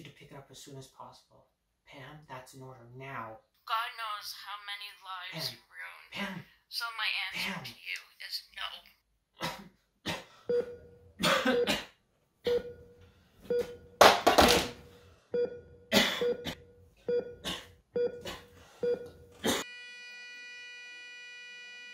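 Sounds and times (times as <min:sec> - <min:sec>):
man coughing and gasping: 0:09.3 - 0:10.5, 0:11.2 - 0:12.0, 0:15.9 - 0:16.7, 0:17.3 - 0:18.6, 0:19.3 - 0:19.6
heart monitor beeps: 0:10.5 - 0:11.7, 0:12.5 - 0:14.0, 0:15.3 - 0:17.4, 0:18.0 - 0:19.3.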